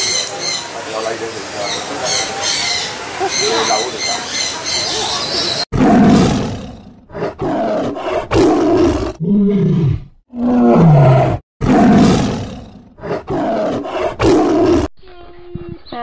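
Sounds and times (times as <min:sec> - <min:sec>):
tiger growling and roaring: 0:05.7 - 0:14.9.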